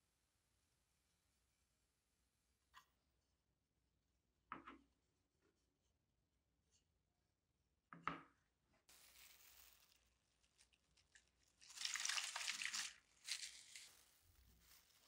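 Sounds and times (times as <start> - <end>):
plastic gloves crinkling: 8.9 - 15.0.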